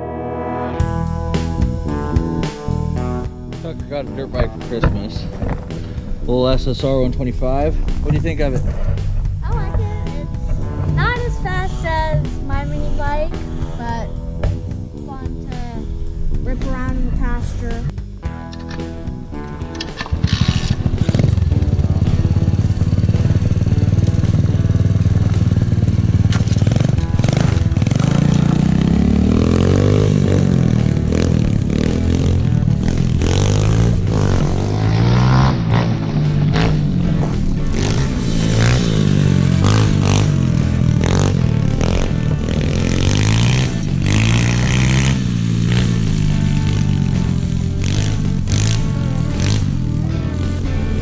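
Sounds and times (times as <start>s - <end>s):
motorbike engine revving: 15.7s - 51.0s.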